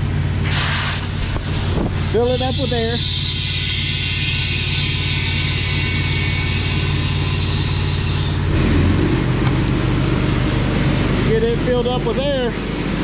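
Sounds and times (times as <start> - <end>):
air compressor running: 0.0 - 13.0
compressed air hissing: 0.4 - 9.5.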